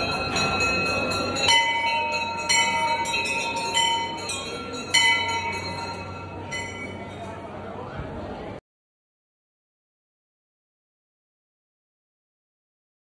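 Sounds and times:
temple bell ringing: 0.0 - 7.8
low crowd murmur: 0.0 - 8.6.

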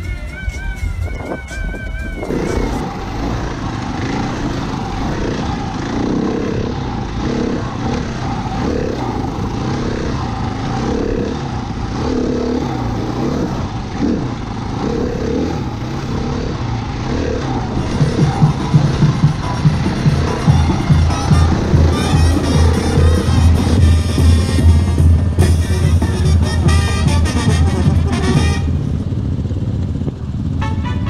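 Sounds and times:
siren wail: 0.0 - 5.8
wind noise on microphone: 0.0 - 6.8, 17.6 - 30.5
motorcycle engine running: 0.0 - 31.0.

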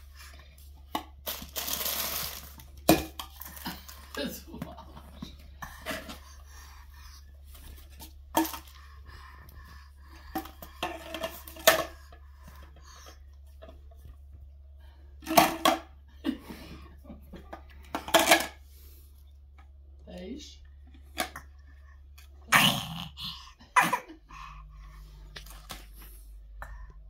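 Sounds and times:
plastic toy pieces clattering: 1.2 - 3.9.

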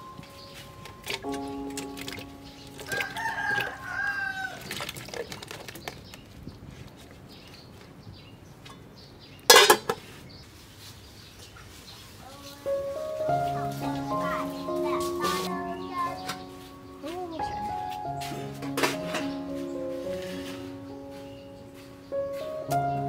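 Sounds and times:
rooster crowing: 2.9 - 4.6
pieces knocking into metal pot: 9.5 - 10.0.

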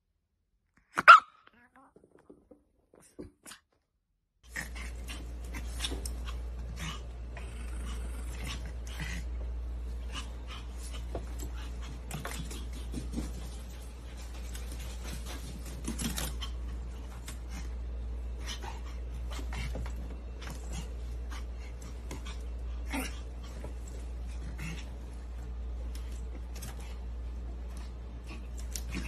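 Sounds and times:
steady low hum: 4.4 - 29.0
dogs scuffling: 9.7 - 17.8.

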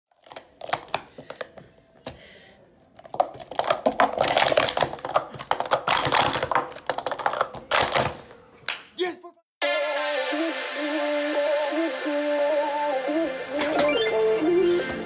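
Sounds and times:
plastic cups clacking: 0.1 - 2.2, 2.9 - 8.4.

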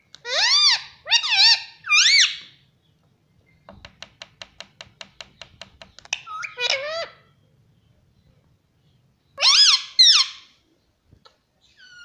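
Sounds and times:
parakeet squeaky calls: 0.2 - 2.5, 6.1 - 7.2, 9.4 - 10.5, 11.6 - 12.0
parakeet whistled calls: 9.4 - 10.5.

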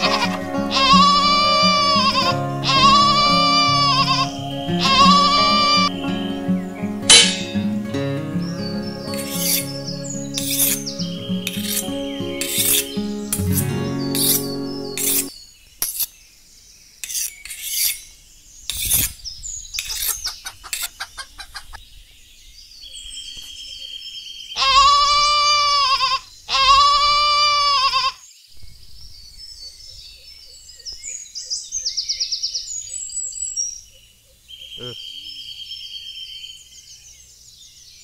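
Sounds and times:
farm animal calls: 0.0 - 15.3, 24.6 - 28.2, 34.6 - 35.3
faint bird chirps: 8.3 - 25.2, 28.2 - 38.0.

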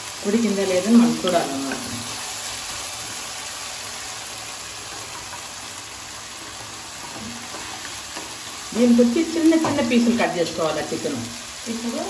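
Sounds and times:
chicken sizzling in oil: 0.0 - 12.0
wooden spatula stirring: 6.3 - 8.7.

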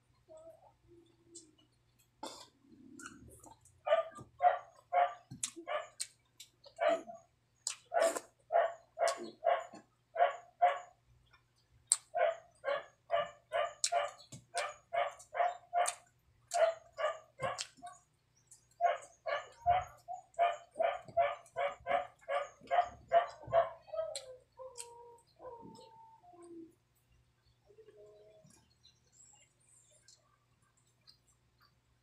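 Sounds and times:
dog barking: 3.8 - 6.0, 6.8 - 7.3, 7.9 - 11.0, 12.0 - 18.0, 18.8 - 25.8.

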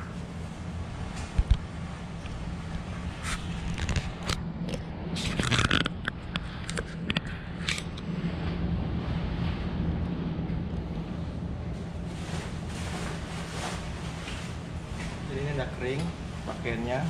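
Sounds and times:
steady low hum: 0.0 - 17.0
light clicks and scrapes: 2.2 - 8.0
fabric rustling: 11.7 - 17.0.

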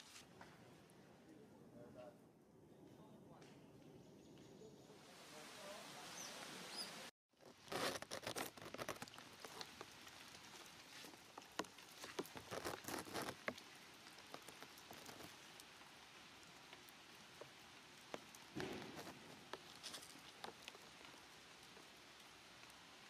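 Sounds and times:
steady hiss: 4.8 - 7.1.

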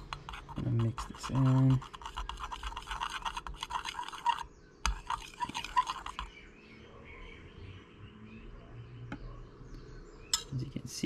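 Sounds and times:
spoon scraping glass cup: 0.0 - 6.3.

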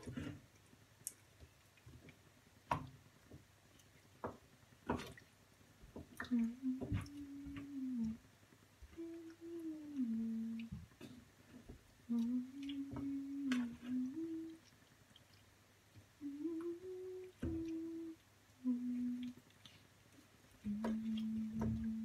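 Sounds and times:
woman humming: 6.2 - 8.2, 8.9 - 10.9, 12.1 - 14.7, 16.2 - 19.4, 20.6 - 22.0.

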